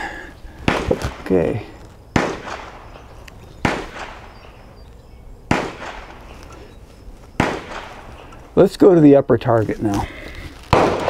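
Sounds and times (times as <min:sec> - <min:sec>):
gunshots: 0:00.6 - 0:01.5, 0:02.1 - 0:04.5, 0:05.5 - 0:06.3, 0:07.4 - 0:08.1, 0:10.7 - 0:11.0.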